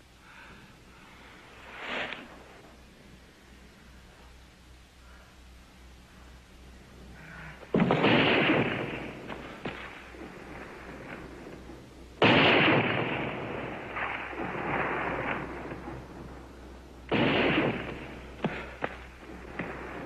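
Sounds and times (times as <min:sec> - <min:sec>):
pistol shots echoing: 0:07.8 - 0:16.0, 0:17.1 - 0:20.0.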